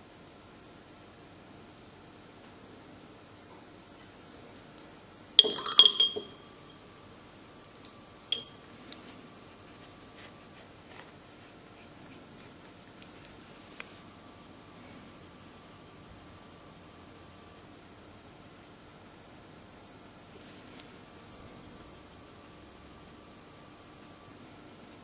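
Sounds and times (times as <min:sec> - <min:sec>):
small hard objects clinking: 0:05.4 - 0:06.8.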